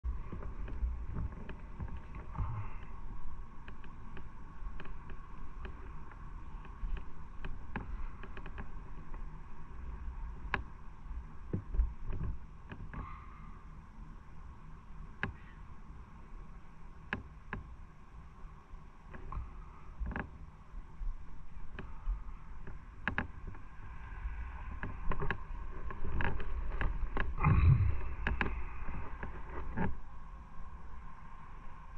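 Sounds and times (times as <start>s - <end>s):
motorcycle engine rumbling: 26.7s - 29.8s.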